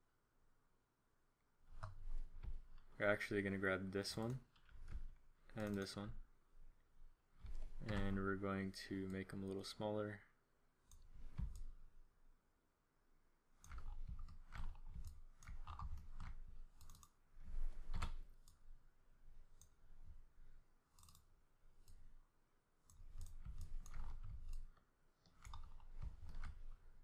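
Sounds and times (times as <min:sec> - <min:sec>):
computer mouse clicking: 0:01.7 - 0:03.0, 0:04.0 - 0:06.1, 0:07.4 - 0:08.2, 0:10.8 - 0:11.8, 0:13.6 - 0:18.8, 0:19.4 - 0:20.2, 0:20.9 - 0:22.2, 0:22.8 - 0:27.0.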